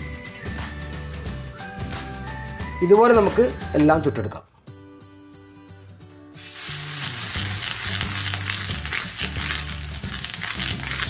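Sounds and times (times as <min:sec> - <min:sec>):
soft background music: 0:00.0 - 0:11.0
hot griddle sizzling: 0:06.4 - 0:11.0.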